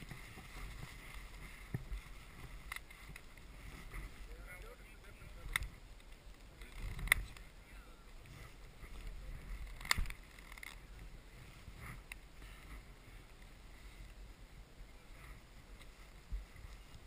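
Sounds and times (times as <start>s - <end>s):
microphone handling rumble: 0.0s - 13.6s
wind noise: 0.0s - 17.0s.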